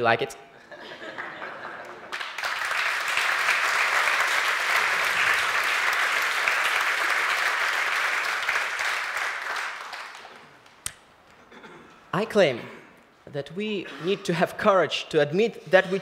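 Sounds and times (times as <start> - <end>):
large audience applauding: 1.2 - 10.8.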